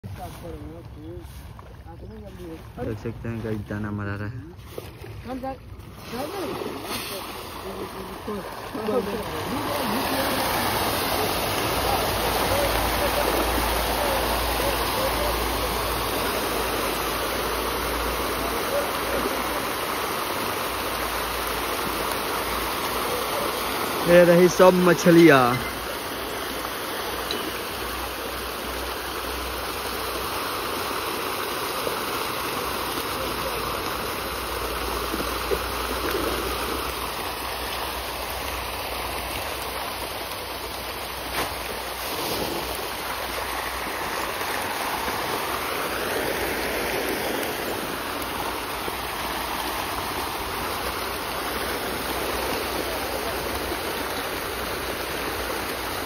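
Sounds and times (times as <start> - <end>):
fish splashing at water surface: 4.5 - 56.0
sharp water slaps: 4.7 - 26.0, 31.0 - 52.8.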